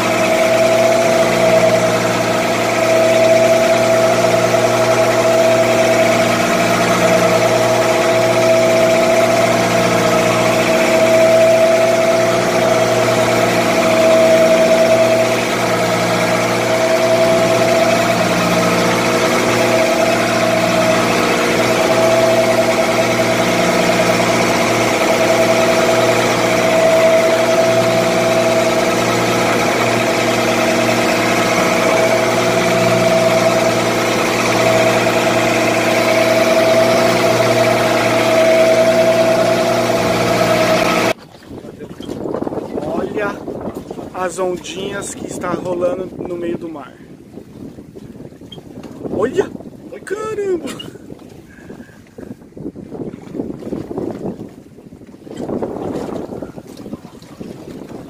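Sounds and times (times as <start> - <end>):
boat engine running: 0.0 - 58.0.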